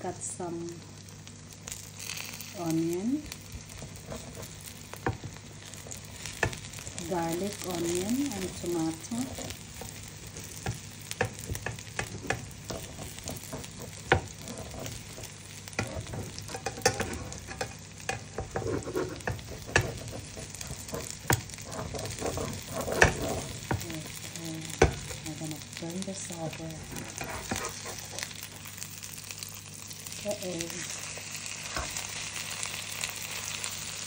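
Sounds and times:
omelette sizzling in a frying pan: 0.0s - 34.0s
metal spatula scraping a pan: 3.7s - 5.2s, 9.4s - 24.1s, 26.4s - 28.8s, 30.8s - 32.7s.

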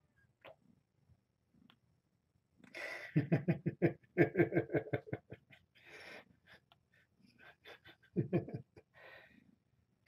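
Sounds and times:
man laughing: 3.1s - 5.6s, 7.4s - 8.8s.

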